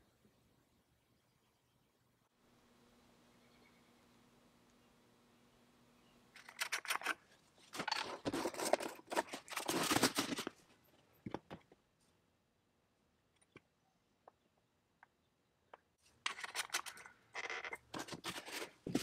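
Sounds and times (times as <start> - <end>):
plastic bottle crackling and clicking: 7.8 - 10.6.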